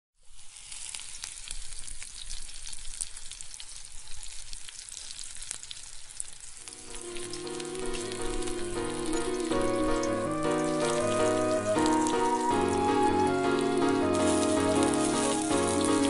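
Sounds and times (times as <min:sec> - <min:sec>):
crackling sizzle: 0:00.2 - 0:16.0
sustained instrumental chords: 0:06.7 - 0:16.0.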